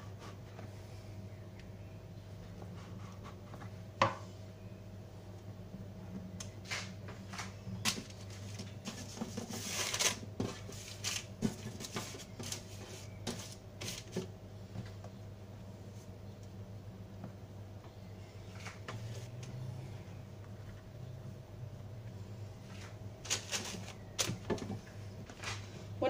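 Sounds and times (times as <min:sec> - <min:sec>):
steady low hum: 0:00.0 - 0:26.0
rustling scrape: 0:07.9 - 0:14.3, 0:22.7 - 0:24.4.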